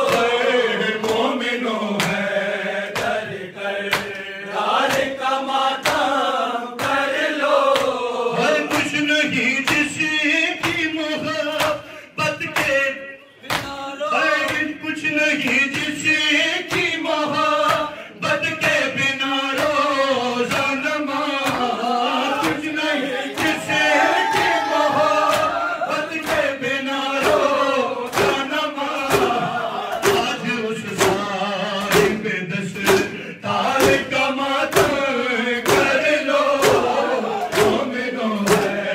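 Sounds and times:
amplified man chanting: 0.0 - 38.9
crowd of men chanting: 0.0 - 38.9
hands slapping chests: 2.0 - 2.3, 2.9 - 3.2, 3.9 - 5.2, 5.8 - 6.2, 7.7 - 8.0, 10.6 - 11.9, 13.4 - 13.8, 17.6 - 17.9, 23.4 - 26.6, 27.2 - 30.4, 31.8 - 32.2, 32.8 - 33.2, 34.7 - 38.8.

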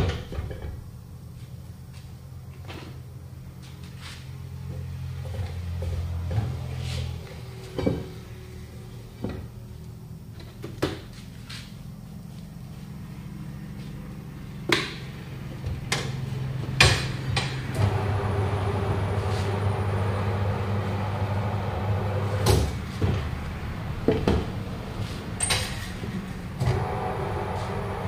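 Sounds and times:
low motor hum: 11.9 - 28.0.

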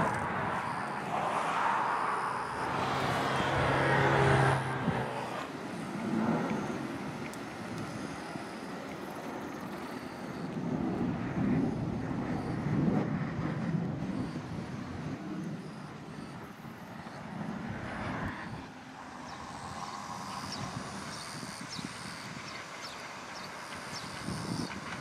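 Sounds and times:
vehicle passing close by: 0.0 - 6.5
low traffic rumble: 0.0 - 9.8, 10.6 - 25.0.

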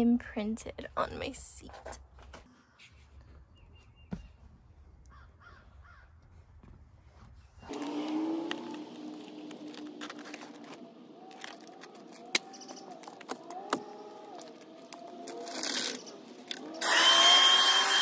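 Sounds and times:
vacuum cleaner running: 7.7 - 11.0, 16.5 - 18.0.

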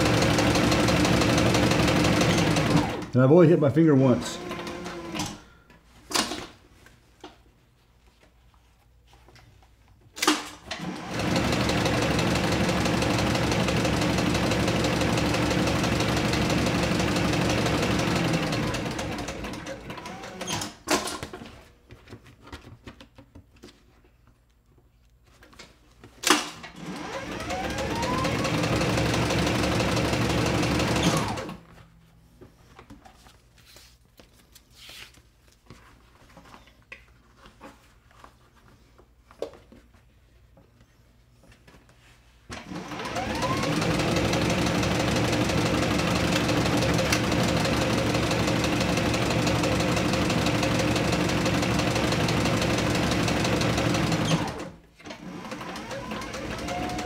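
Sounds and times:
sewing machine stitching: 0.0 - 3.1, 4.0 - 5.4, 10.3 - 21.1, 26.3 - 31.6, 42.5 - 57.0.

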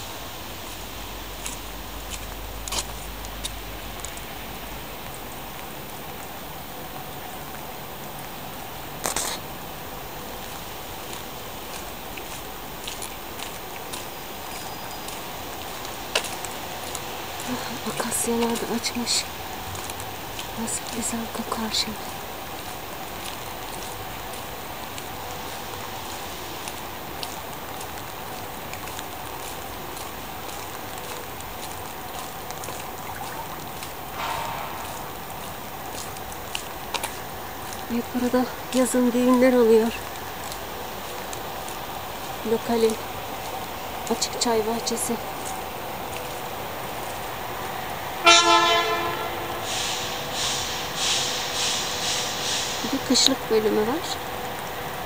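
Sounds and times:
rain on wet paving: 0.0 - 55.0.

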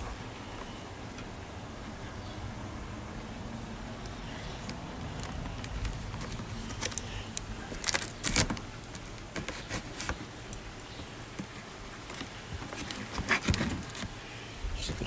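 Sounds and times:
cardboard box rustling and crackling: 4.6 - 10.3, 11.4 - 14.2.

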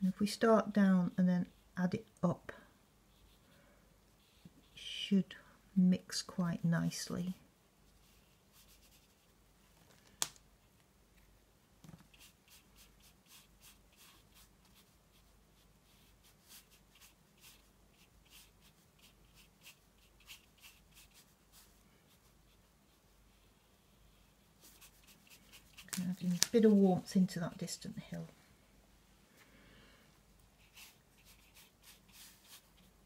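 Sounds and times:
brush dabbing on paper: 0.1 - 1.8, 3.0 - 5.0, 6.2 - 9.4, 12.0 - 28.0, 30.4 - 33.0.

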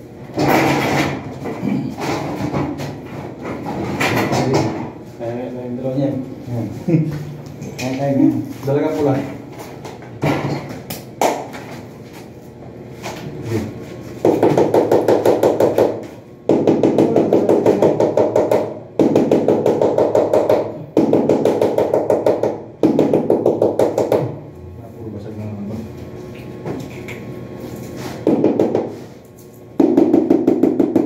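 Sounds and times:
rapid tapping on tile: 14.2 - 24.3, 29.8 - 31.0.

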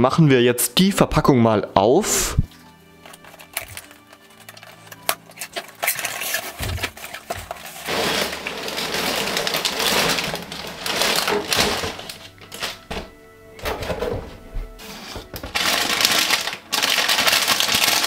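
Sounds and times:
plastic bags rustling: 2.5 - 18.0
scissors snipping tape: 3.1 - 7.6.

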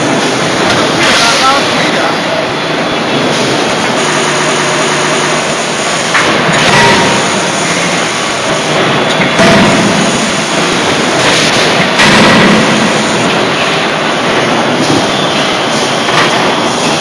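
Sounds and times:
forging machinery din: 3.4 - 15.2.

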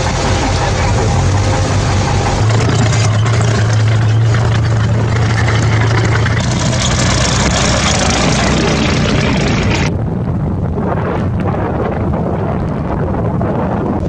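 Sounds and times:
tracked vehicle diesel engines: 0.0 - 9.9
steady low drone: 0.0 - 14.0.

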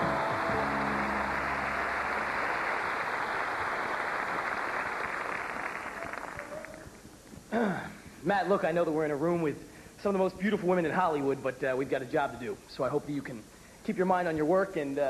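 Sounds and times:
large audience applauding: 0.0 - 7.0.

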